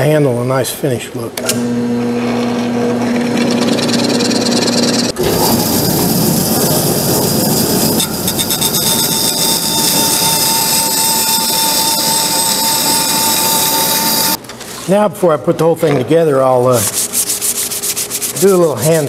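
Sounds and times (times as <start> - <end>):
drill press humming: 1.4 - 14.4
belt sander running: 1.5 - 14.4
steady whine: 3.0 - 14.4.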